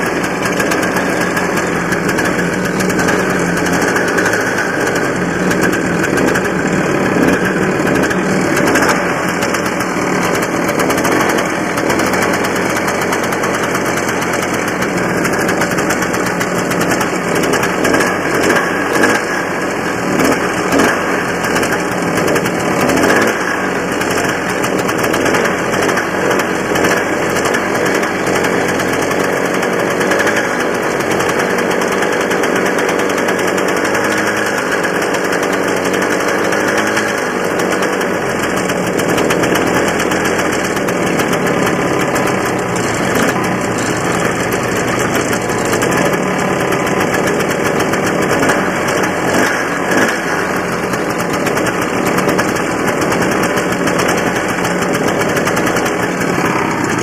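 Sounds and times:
two-stroke engine idling: 0:00.0 - 0:57.0.

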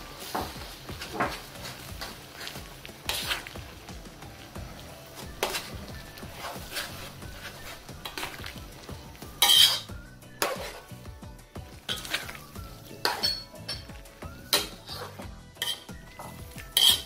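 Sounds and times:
metal spatula scraping a wok: 0:00.2 - 0:03.6, 0:05.2 - 0:08.6, 0:09.2 - 0:11.0, 0:11.9 - 0:17.0.

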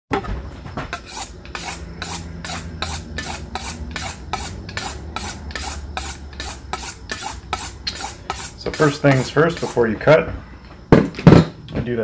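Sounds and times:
knife scraping honing rod: 0:00.9 - 0:09.9.

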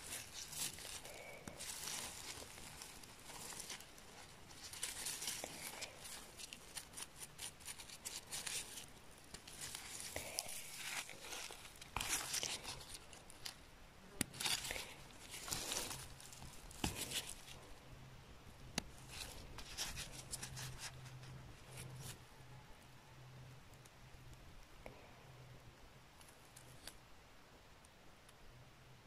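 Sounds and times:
knife trimming stems: 0:00.0 - 0:13.6, 0:14.2 - 0:17.6
gloved hands rustling forest litter: 0:00.0 - 0:17.9, 0:18.6 - 0:22.2.

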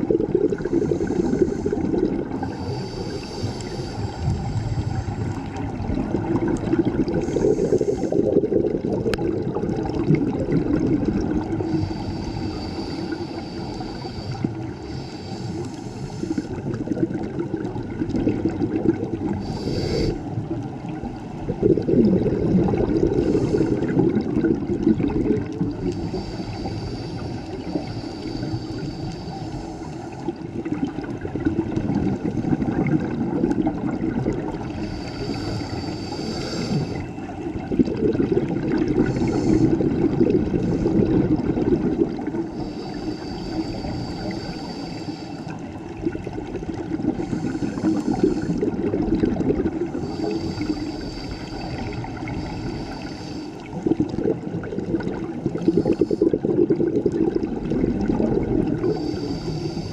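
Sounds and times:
underwater exhaled air bubbling: 0:00.0 - 0:59.9
regulator hiss: 0:00.6 - 0:05.5, 0:11.7 - 0:16.6, 0:19.4 - 0:20.2, 0:26.0 - 0:30.3, 0:42.4 - 0:45.6, 0:49.9 - 0:53.7, 0:58.9 - 0:59.9.

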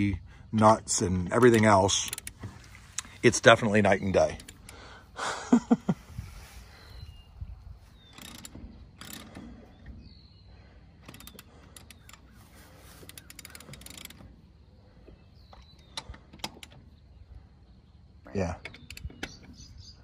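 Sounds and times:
metallic clicking of lug nuts: 0:01.2 - 0:03.2, 0:04.0 - 0:05.0, 0:08.0 - 0:09.9, 0:10.9 - 0:17.0, 0:18.6 - 0:19.7.

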